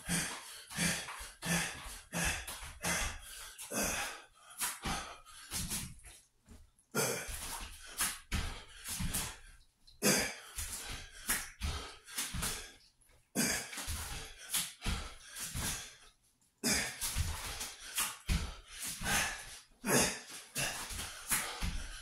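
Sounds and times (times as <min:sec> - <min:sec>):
man breathing hard: 0:00.0 - 0:05.8, 0:06.9 - 0:12.8, 0:13.4 - 0:22.0.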